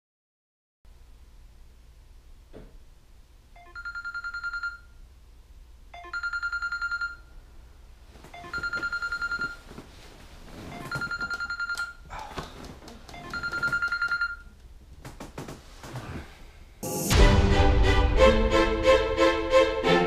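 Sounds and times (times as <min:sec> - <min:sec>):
phone alarm ringing: 0:03.6 - 0:04.9, 0:06.0 - 0:07.3, 0:08.4 - 0:09.6, 0:10.7 - 0:12.0, 0:13.2 - 0:14.5
bedding rustling: 0:08.0 - 0:14.2, 0:14.9 - 0:16.3.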